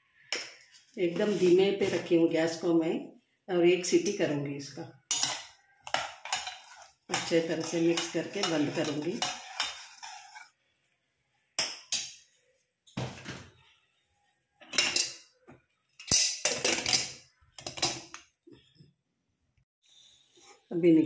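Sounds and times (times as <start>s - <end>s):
spoon scraping in a pot: 5.1s - 10.6s.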